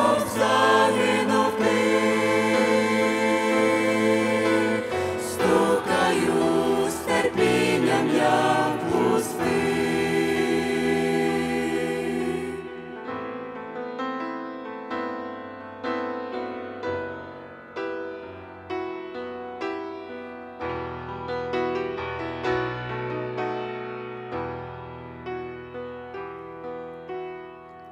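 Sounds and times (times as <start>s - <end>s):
mixed choir singing a hymn: 0.0s - 13.4s
piano chords: 0.0s - 27.9s.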